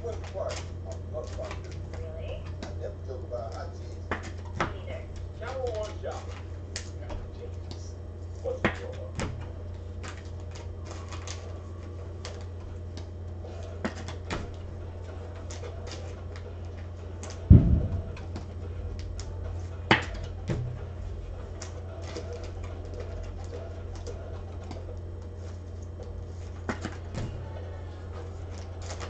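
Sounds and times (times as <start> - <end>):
steady low hum: 0.0 - 29.0
heavy thump: 17.5 - 18.5, 19.9 - 21.0.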